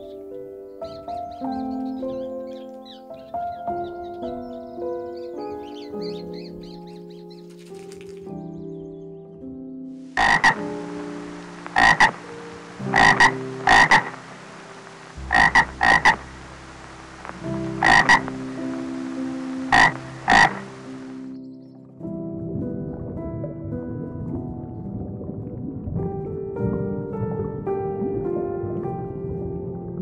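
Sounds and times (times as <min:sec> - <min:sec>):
frog croaking: 0:10.1 - 0:21.4
stream rushing: 0:10.2 - 0:21.3.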